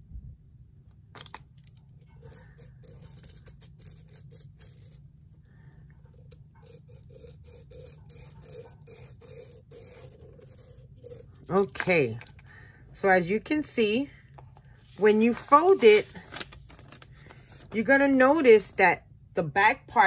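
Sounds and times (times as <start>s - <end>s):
pen scratching on paper: 2.2s - 5.0s, 6.0s - 12.1s.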